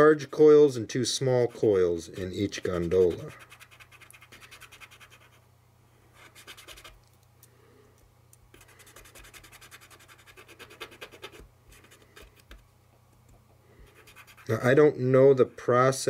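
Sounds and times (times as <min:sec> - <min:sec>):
fingertip rubbing scratchily: 0:01.4 - 0:05.4, 0:08.5 - 0:12.6, 0:13.9 - 0:14.8.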